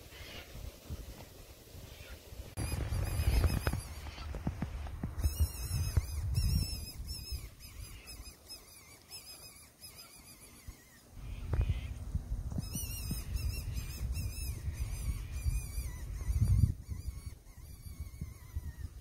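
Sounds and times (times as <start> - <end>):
low rumble: 11.2 - 15.8.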